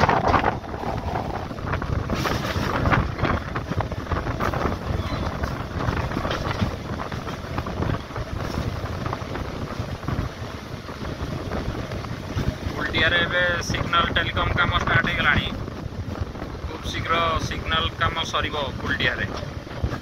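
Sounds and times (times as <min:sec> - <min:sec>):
train wheels rumbling on rails: 0:00.0 - 0:20.0
wind buffeting microphone: 0:00.0 - 0:20.0.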